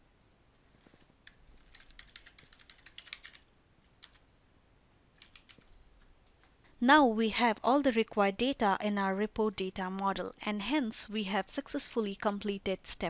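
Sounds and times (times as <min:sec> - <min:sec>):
keyboard typing: 0:01.2 - 0:04.2, 0:05.2 - 0:05.7.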